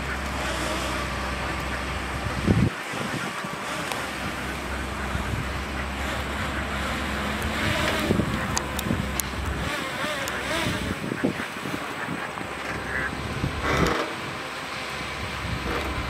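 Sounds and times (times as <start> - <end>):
excavator diesel engine running: 0.0 - 16.0
wind buffeting microphone: 0.0 - 16.0
sharp clicks: 3.8 - 4.1, 7.3 - 10.8.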